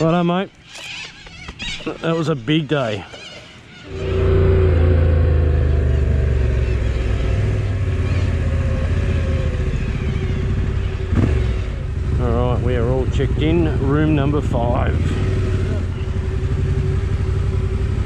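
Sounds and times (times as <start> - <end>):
motorcycle engine at low revs: 3.9 - 18.0.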